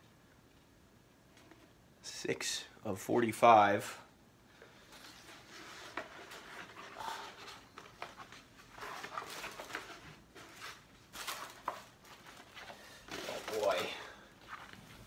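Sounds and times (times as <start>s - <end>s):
paper and plastic tube rustling: 4.7s - 15.0s.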